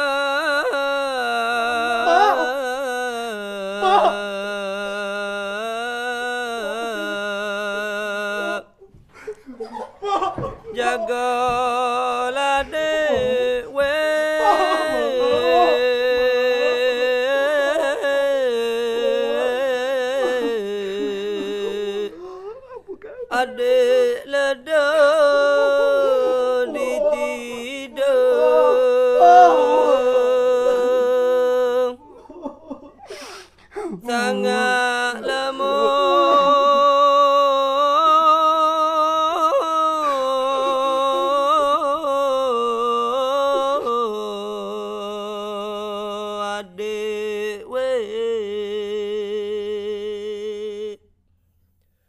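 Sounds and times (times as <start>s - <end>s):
person chanting: 0.0s - 8.9s, 9.8s - 32.8s, 33.8s - 51.0s.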